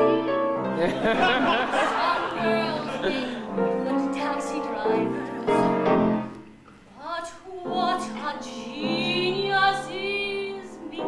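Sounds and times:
piano accompaniment: 0.0s - 6.6s, 7.5s - 11.0s
woman singing: 2.0s - 6.0s, 7.0s - 11.0s.

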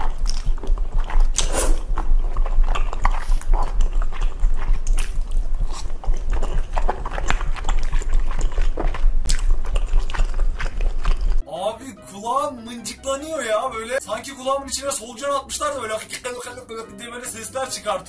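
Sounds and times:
steady low hum: 0.0s - 11.4s
wet mouth clicks: 0.0s - 11.4s
woman chewing and smacking food: 0.0s - 11.4s.

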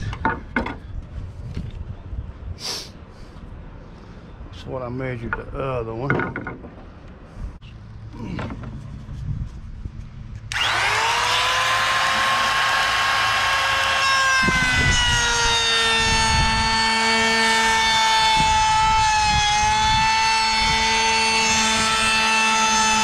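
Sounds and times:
router bit cutting wood: 10.5s - 23.0s
trim router whining: 10.5s - 23.0s.

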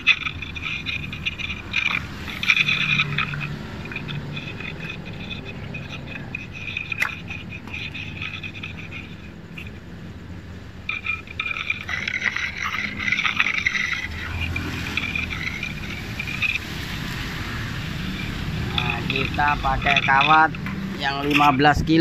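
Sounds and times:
vehicle rumbling past: 0.0s - 22.0s
scraping and rattling of welder cables: 10.9s - 21.8s.

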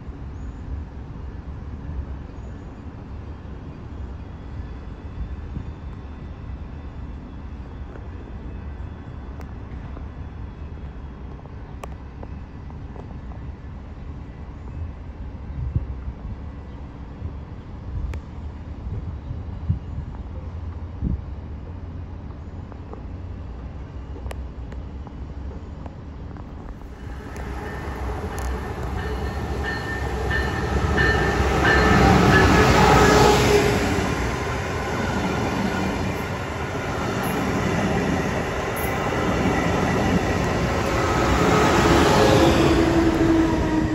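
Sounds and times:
diesel locomotive rumbling: 15.2s - 43.9s
high-pitched squeal: 26.9s - 43.9s.

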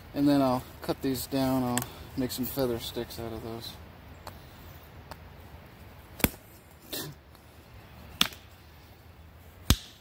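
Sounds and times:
axe chopping wood: 6.2s - 6.4s, 9.6s - 10.0s.

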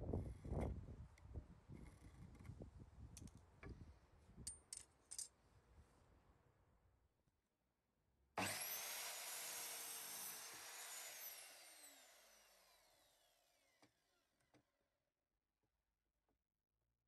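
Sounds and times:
saw blade spinning down whine: 8.4s - 13.9s
mitre saw cutting wood: 8.4s - 14.2s.

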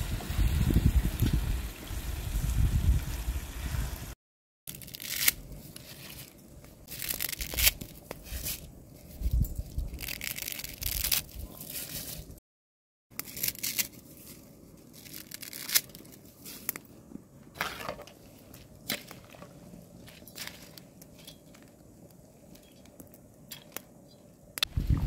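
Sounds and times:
boiling water: 17.4s - 23.8s.

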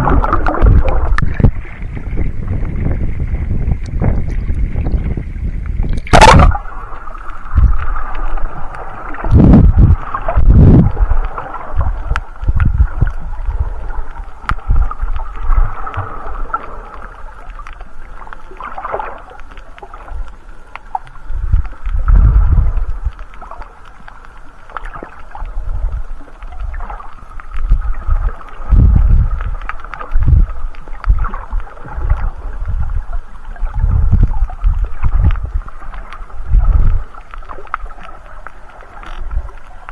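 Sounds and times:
underwater water rushing: 0.0s - 39.9s
low underwater thumps: 9.3s - 11.2s, 11.8s - 13.8s, 27.6s - 29.4s.

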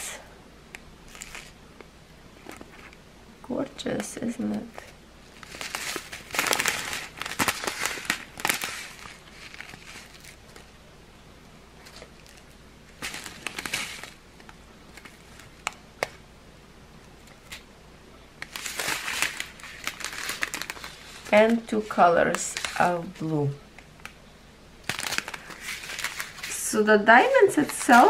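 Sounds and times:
plastic bags crinkling: 1.1s - 1.6s, 4.8s - 10.7s, 11.8s - 14.2s, 18.4s - 23.3s, 24.8s - 28.0s.

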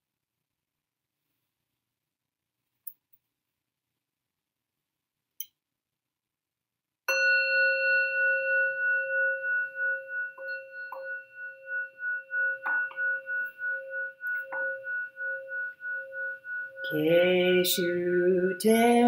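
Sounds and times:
bowl bell ringing: 7.1s - 19.0s.

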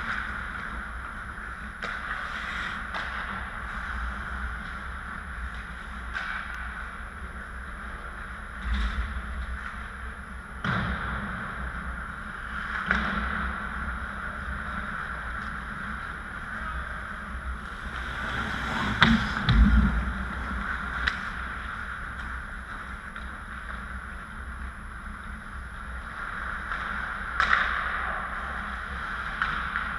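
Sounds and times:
hockey sticks and puck clacking: 0.0s - 7.5s, 12.5s - 19.6s, 20.4s - 24.0s, 26.0s - 29.9s
skates on ice: 0.0s - 29.9s
low thump: 18.8s - 20.6s.

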